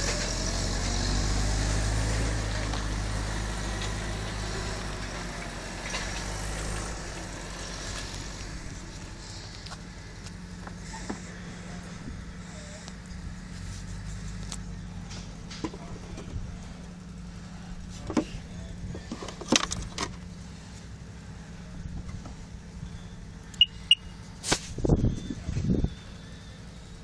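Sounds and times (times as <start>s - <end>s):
high electronic beeps: 22.9s - 24.1s.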